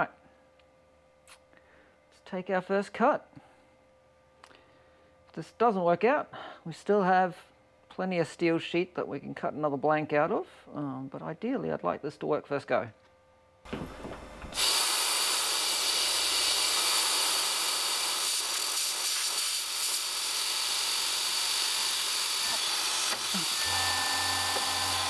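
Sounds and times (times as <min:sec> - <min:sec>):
compressed air hissing: 0:14.5 - 0:20.8
machine motor hum and whine: 0:15.1 - 0:25.0.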